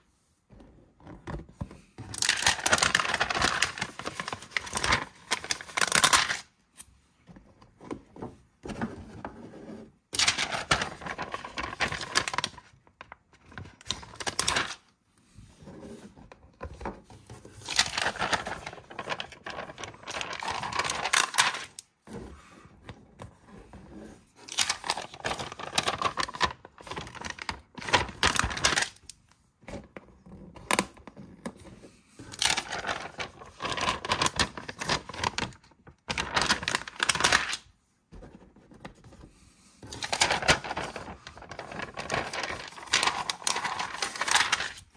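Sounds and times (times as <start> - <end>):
plastic sheet crinkling: 2.2 - 6.5, 10.2 - 13.2, 17.6 - 21.9, 24.4 - 29.2, 32.2 - 37.7, 39.8 - 44.9.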